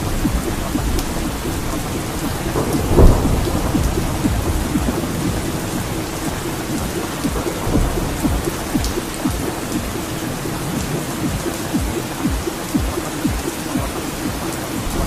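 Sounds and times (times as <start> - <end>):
low thunder rumble: 0.0 - 12.1
raindrop impacts: 0.0 - 15.0
steady rain: 0.0 - 15.0.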